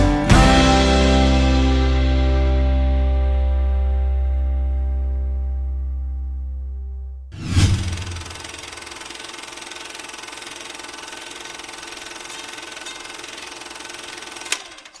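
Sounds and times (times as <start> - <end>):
fast mechanical clatter: 7.7 - 15.0.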